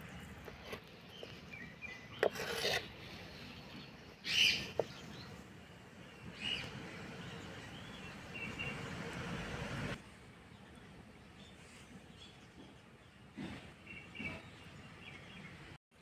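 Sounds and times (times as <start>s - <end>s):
birds chirping faintly: 0.0s - 9.1s
knife scraping clay plate: 0.4s - 1.3s, 2.2s - 3.2s.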